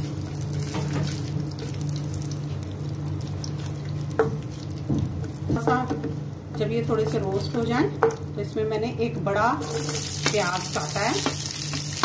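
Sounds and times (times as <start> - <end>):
spices sizzling in hot oil: 0.0 - 8.5, 9.3 - 12.0.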